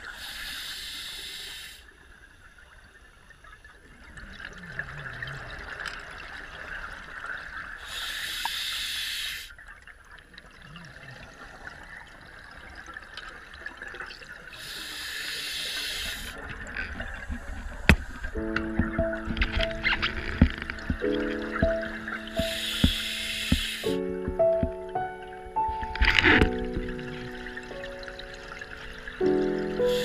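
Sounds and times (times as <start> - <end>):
diver breathing through regulator: 7.8 - 9.5, 14.6 - 16.4, 22.2 - 24.0, 29.8 - 30.0.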